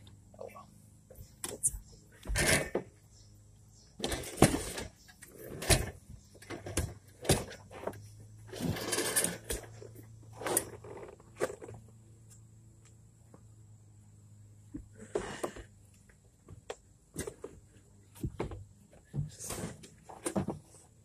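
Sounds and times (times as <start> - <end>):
bicycle clunking and rustling: 1.2 - 3.0, 3.9 - 12.0, 16.4 - 20.8.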